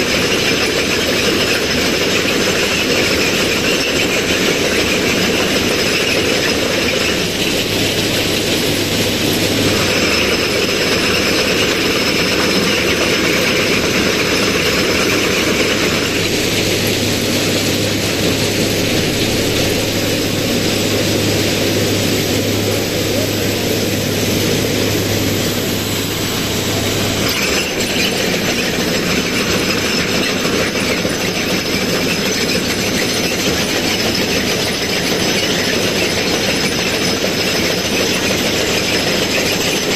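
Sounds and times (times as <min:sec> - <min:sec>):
ballast cleaning machine din: 0:00.0 - 0:39.9
low engine hum: 0:06.5 - 0:29.9.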